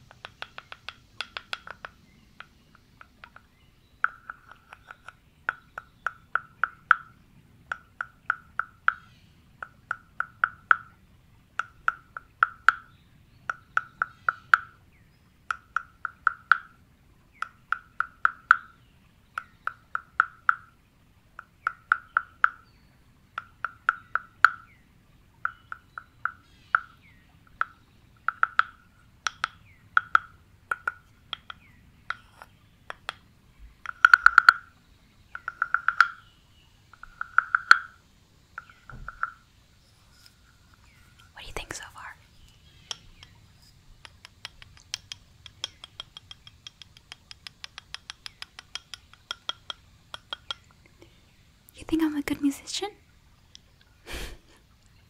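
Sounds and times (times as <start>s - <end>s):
wooden guiro rasping croaks: 0.0s - 7.1s, 7.7s - 10.9s, 11.6s - 12.9s, 13.5s - 14.8s, 15.5s - 18.8s, 21.4s - 22.6s, 25.4s - 36.3s, 36.9s - 51.1s.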